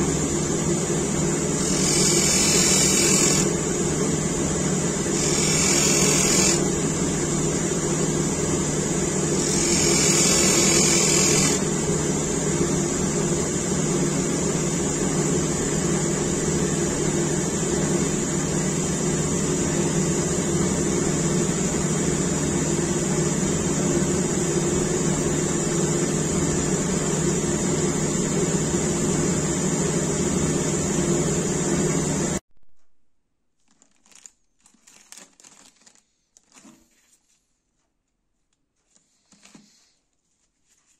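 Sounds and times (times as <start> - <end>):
bench grinder grinding steel: 1.6 - 3.6, 5.2 - 6.7, 9.4 - 11.6
plastic packaging crinkle: 33.6 - 37.4.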